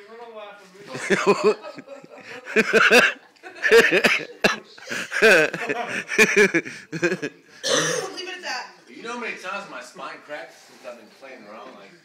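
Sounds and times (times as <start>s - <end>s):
people laughing hard: 0.9s - 7.4s.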